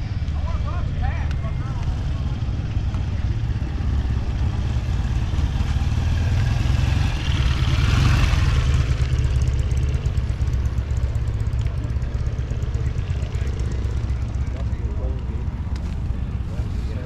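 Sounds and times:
motorcycle passing: 0.0s - 17.0s.

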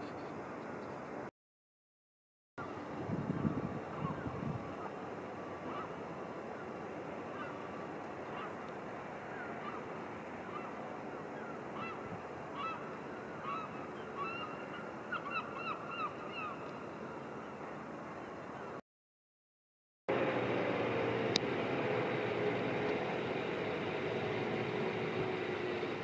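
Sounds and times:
outdoor background rush: 0.0s - 1.3s, 2.6s - 18.8s, 20.1s - 26.0s
birds honking calls: 9.3s - 16.6s.

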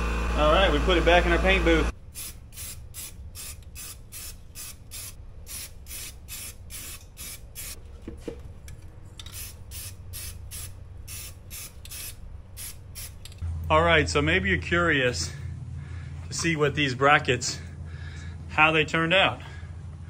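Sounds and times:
spray paint can spraying: 2.1s - 7.8s, 9.2s - 13.3s.

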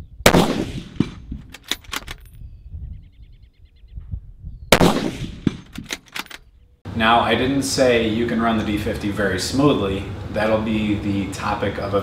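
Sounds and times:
rifle shots echoing: 0.3s - 1.3s, 4.7s - 5.9s
rifle bolt metallic clacks: 1.0s - 2.4s, 5.4s - 6.5s.

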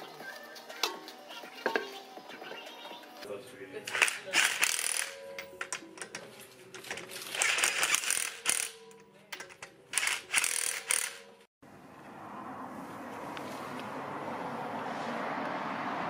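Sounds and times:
impact wrench rattling: 6.8s - 8.8s, 9.4s - 11.2s.

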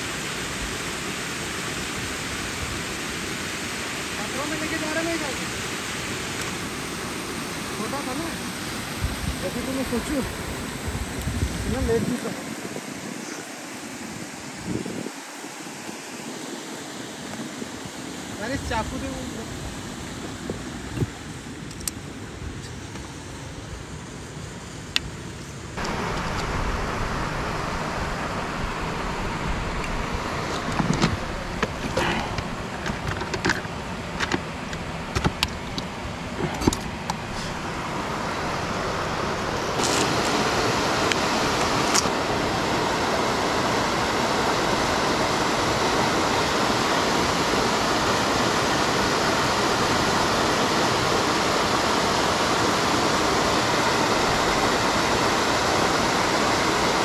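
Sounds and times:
water rushing down dam wall: 0.0s - 21.3s, 25.8s - 57.0s
low rumble: 25.8s - 32.8s.

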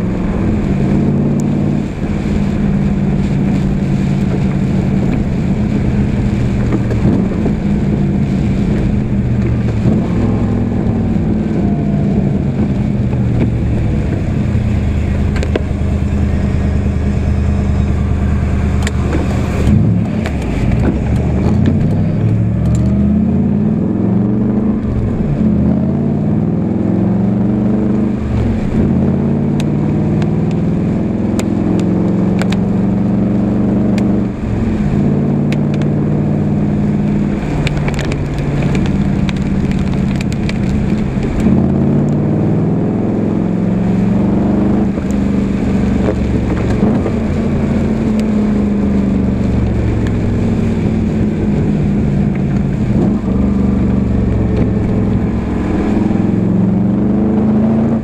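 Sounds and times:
car engine from inside cabin: 0.0s - 58.0s.

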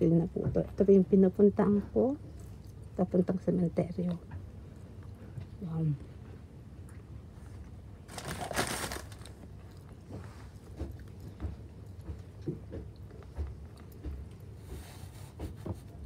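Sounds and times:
train carriage hum: 3.2s - 16.0s.

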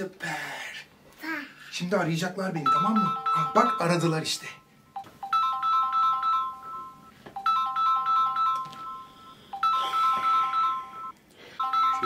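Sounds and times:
phone ringtone melody: 2.6s - 12.0s.

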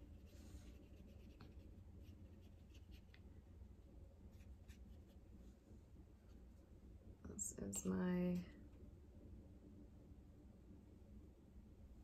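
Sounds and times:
brush stroking across paper: 0.0s - 3.2s, 4.3s - 5.6s
low steady room hum: 0.0s - 12.0s.

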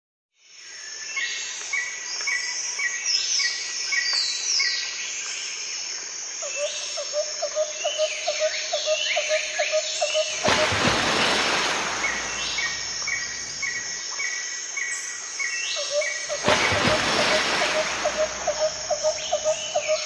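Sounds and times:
bird chirping: 14.9s - 20.0s
whistled bird notes: 15.8s - 20.0s
low repeated bird note: 16.3s - 20.0s.

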